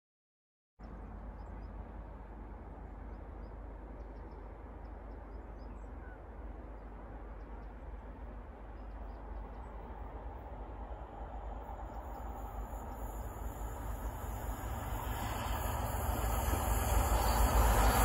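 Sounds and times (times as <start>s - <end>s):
low outdoor background rush: 0.8s - 18.0s
faint bird chirps: 3.1s - 7.9s.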